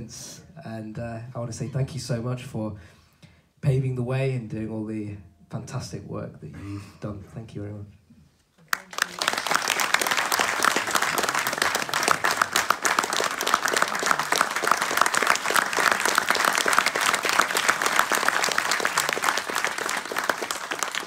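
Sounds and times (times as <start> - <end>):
audience applause: 8.7 - 21.0.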